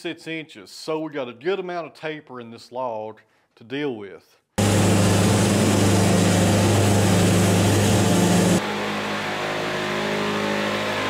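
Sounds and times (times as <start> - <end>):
band saw cutting log: 4.6 - 9.2.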